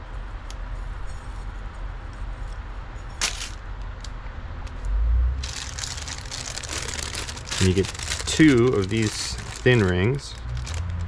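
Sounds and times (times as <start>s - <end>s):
rustling: 0.7s - 3.6s, 5.4s - 11.0s
handling noises: 0.7s - 4.1s, 5.4s - 11.0s.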